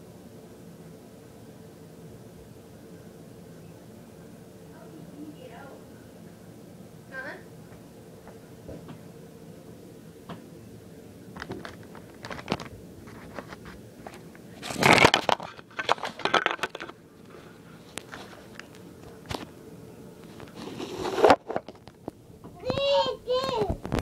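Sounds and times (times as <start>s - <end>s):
rustling and crinkling: 11.3s - 24.0s.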